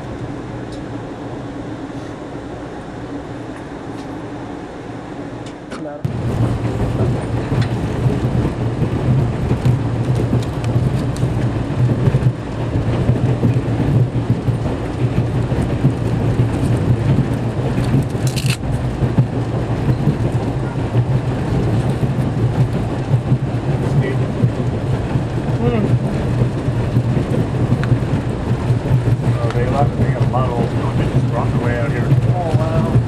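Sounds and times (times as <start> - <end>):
train rumbling on rails: 0.0 - 33.0.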